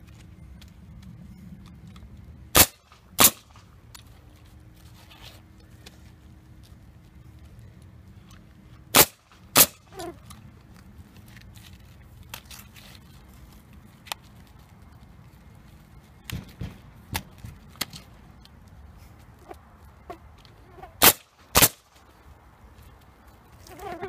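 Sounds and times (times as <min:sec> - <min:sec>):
nail gun shots: 0:02.6 - 0:03.5, 0:08.9 - 0:09.8, 0:21.0 - 0:21.8.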